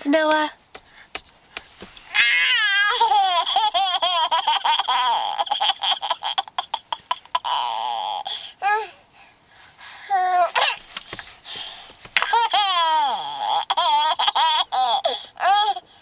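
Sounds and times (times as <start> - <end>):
toddler laughing: 2.2 - 8.2, 12.2 - 15.8.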